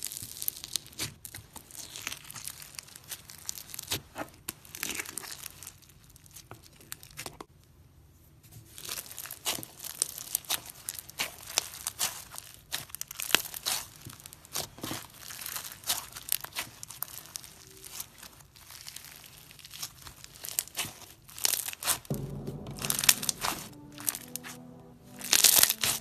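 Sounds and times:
music: 0:22.1 - 0:26.0.

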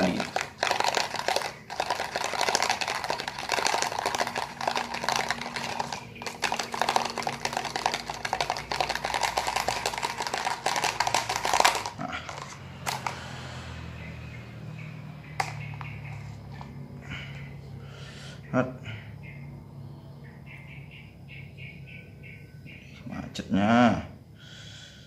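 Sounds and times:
bearing rattling in plastic cup: 0:00.0 - 0:13.2.

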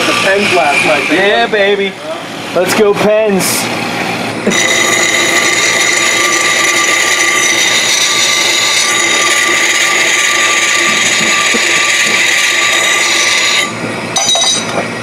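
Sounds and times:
abrasive scraping spinning rotor: 0:04.5 - 0:13.8.

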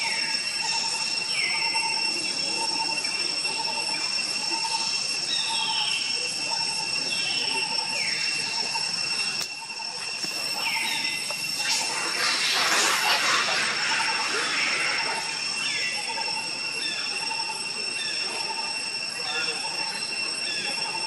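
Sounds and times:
high-pitched insect drone: 0:00.0 - 0:21.0
falling whistled bird call: 0:07.1 - 0:21.0.

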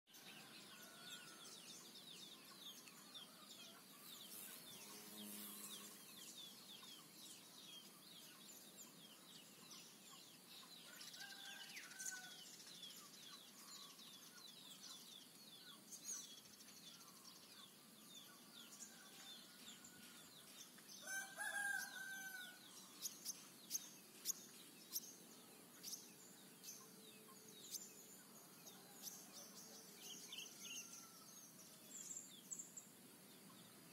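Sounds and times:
small birds chirping: 0:00.1 - 0:33.9
rooster crowing: 0:21.0 - 0:22.6.

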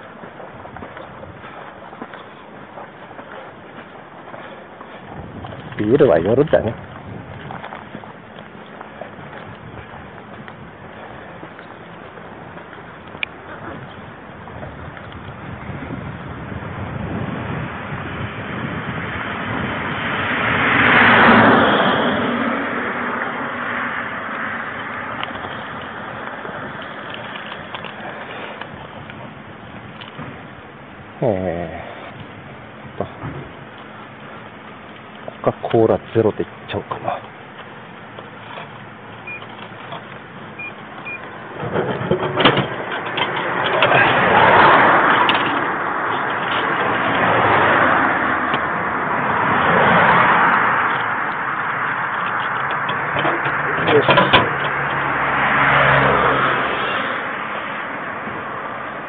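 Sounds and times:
vehicle passing on street: 0:00.0 - 0:59.0
wind rumbling on microphone: 0:00.0 - 0:59.0
vending machine beeping: 0:39.2 - 0:39.5, 0:40.6 - 0:41.2.

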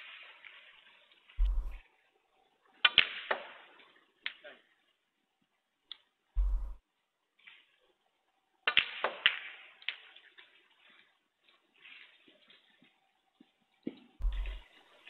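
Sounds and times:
heavy low thump: 0:01.4 - 0:01.8, 0:06.4 - 0:06.8, 0:14.2 - 0:14.6.

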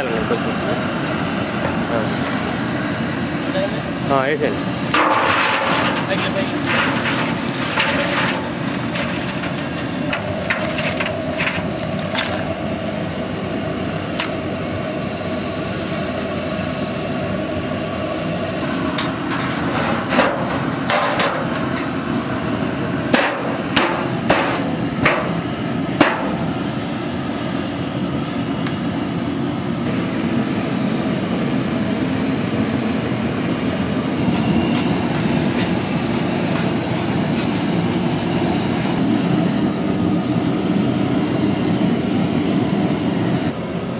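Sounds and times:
steady rushing noise: 0:02.1 - 0:15.4.

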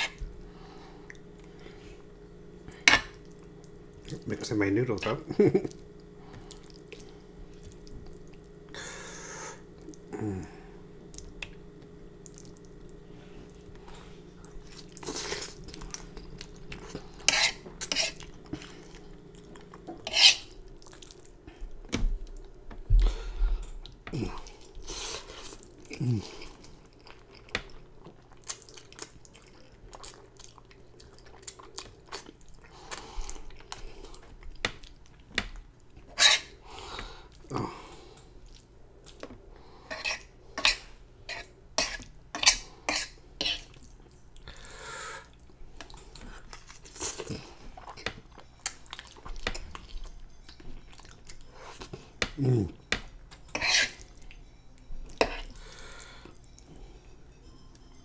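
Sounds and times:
wet chewing and mouth smacking: 0:12.2 - 0:13.0, 0:20.7 - 0:35.3, 0:45.3 - 0:52.0.

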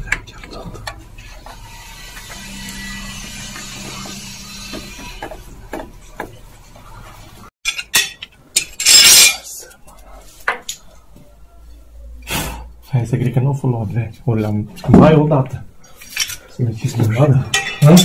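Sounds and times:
metal tools knocking and clanking: 0:07.6 - 0:09.5, 0:17.5 - 0:18.0.

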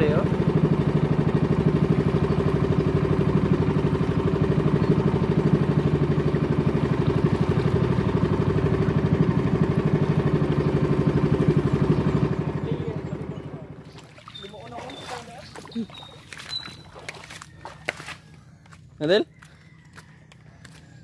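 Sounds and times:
boat engine running: 0:00.0 - 0:19.9.

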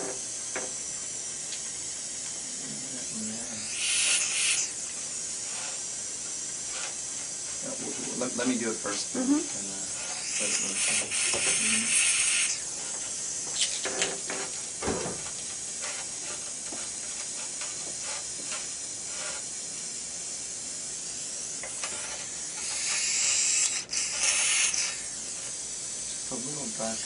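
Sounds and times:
dental suction hissing: 0:00.0 - 0:27.0.

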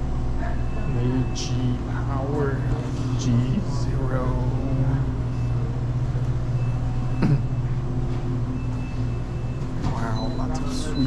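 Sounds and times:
refrigerated coolers humming: 0:00.0 - 0:11.0.

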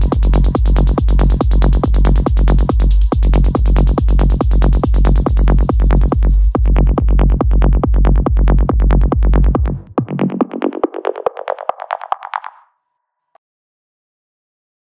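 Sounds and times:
trance kick drum and bass: 0:00.0 - 0:12.3.

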